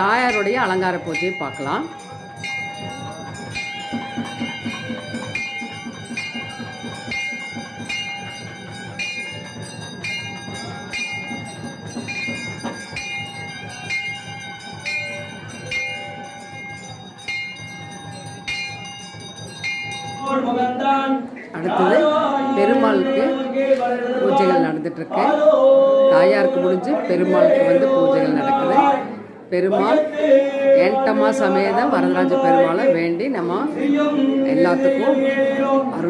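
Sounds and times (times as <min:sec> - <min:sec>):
temple bell ringing: 0:00.0 - 0:20.8.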